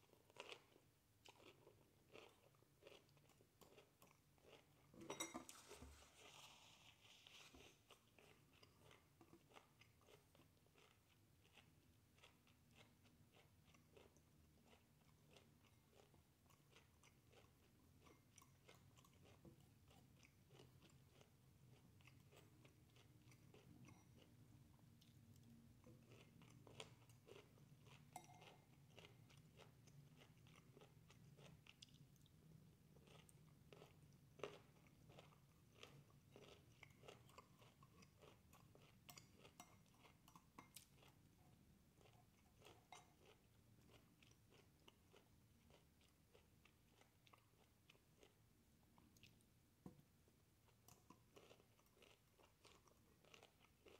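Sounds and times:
faint chewing: 0.0 - 53.9
fork scraping ceramic bowl: 5.0 - 7.7.

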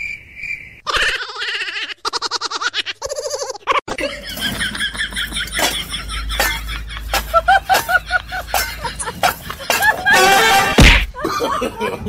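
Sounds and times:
person laughing: 0.9 - 12.0
loud bang: 10.2 - 11.2.

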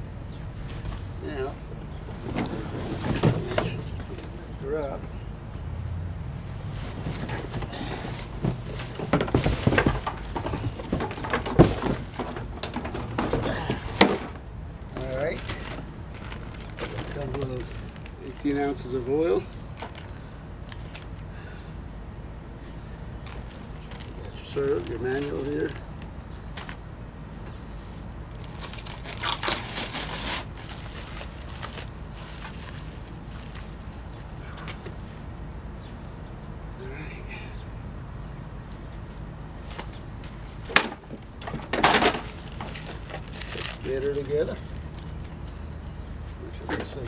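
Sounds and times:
cardboard scraping and rustling: 2.1 - 4.0, 6.7 - 14.4, 28.4 - 34.9, 40.7 - 44.7
packaging crinkling: 15.0 - 18.6, 28.3 - 34.4, 42.0 - 45.3.

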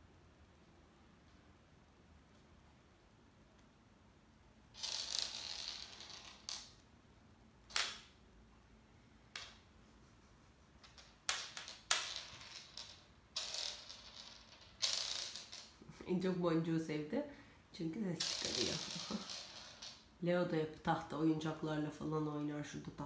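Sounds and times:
bead toy rattling on floor: 4.8 - 6.9, 7.6 - 8.2, 9.2 - 9.8, 10.7 - 16.0, 18.2 - 20.2.

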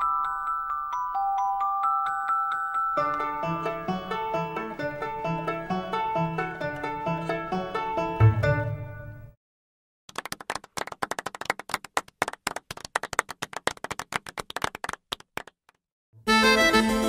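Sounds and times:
small group clapping: 10.1 - 15.8.

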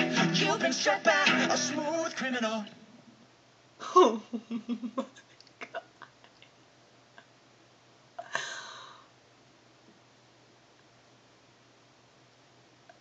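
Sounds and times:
young woman laughing: 3.8 - 6.5.

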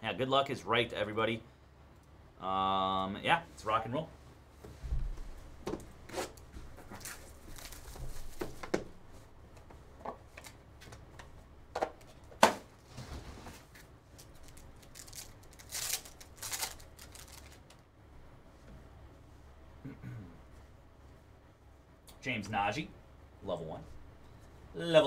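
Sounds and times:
foil packs crinkling: 6.9 - 8.5, 14.2 - 17.8
plastic wrapping tearing: 14.2 - 17.8.

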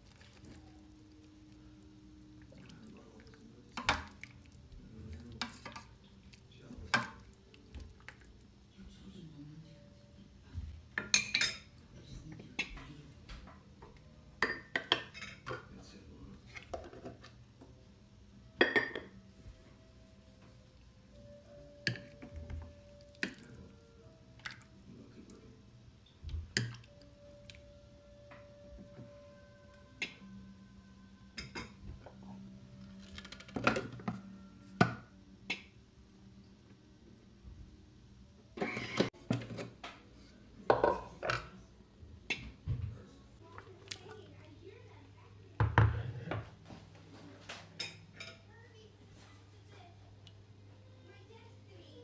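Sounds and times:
low steady hum: 0.0 - 52.0
spatula and dishes clinking on metal bowl: 5.2 - 6.0, 11.0 - 11.8, 14.4 - 15.6, 18.6 - 19.2, 21.8 - 23.6.

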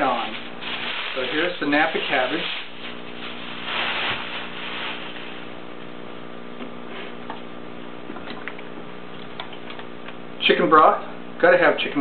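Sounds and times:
cabbage wrapping rustling: 0.0 - 5.6.

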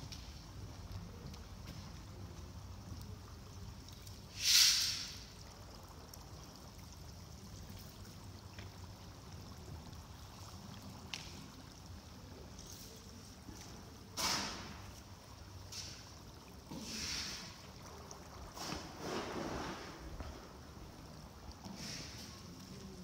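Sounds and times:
short loud hiss: 4.3 - 5.2, 16.8 - 17.6.

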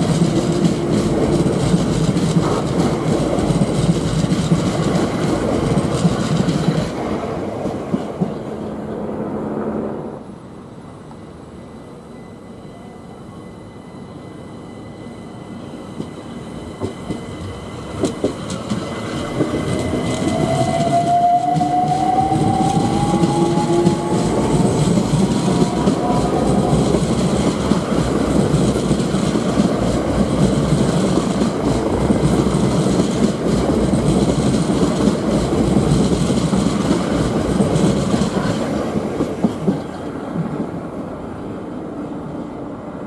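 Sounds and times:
clickety-clack over rail joints: 0.0 - 8.7, 16.8 - 40.8
train wheels rumbling on rail: 0.0 - 11.6, 14.2 - 43.0.

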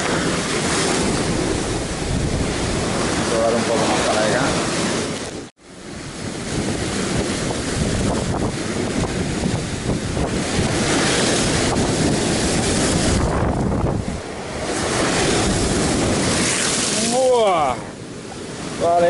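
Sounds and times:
wind buffeting microphone: 0.0 - 18.9
surf breaking on rocks: 0.0 - 19.0.

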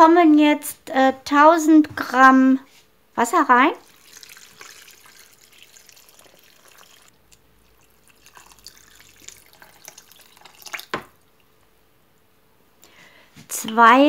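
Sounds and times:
water pouring into bowl: 3.8 - 11.4.

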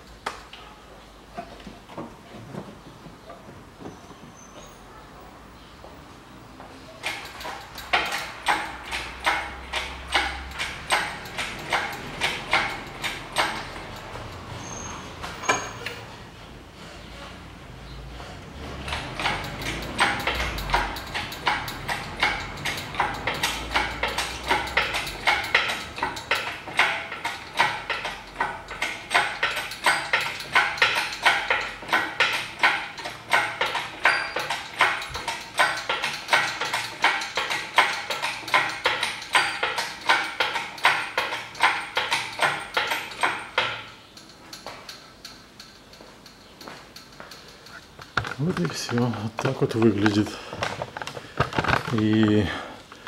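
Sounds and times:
engine crane clacking: 7.0 - 16.2, 18.5 - 53.0.

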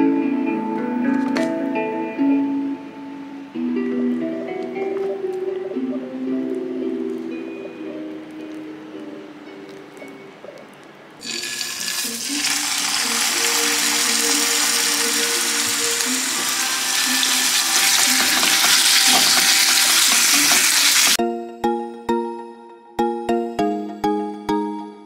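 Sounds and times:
quiet background music: 0.0 - 25.0
meat sizzling in hot oil: 11.2 - 21.2.

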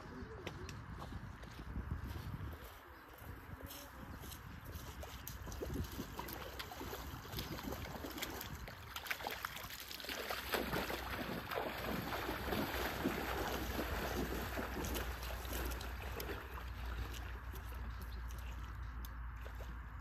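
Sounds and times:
wind rumble on microphone: 0.0 - 9.7, 10.5 - 20.0
water splashing and sloshing: 4.6 - 20.0.

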